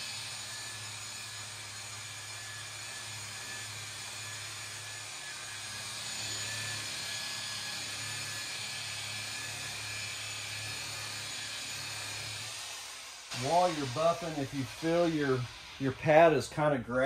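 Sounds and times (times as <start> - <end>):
electric polisher motor whine: 0.0 - 16.7.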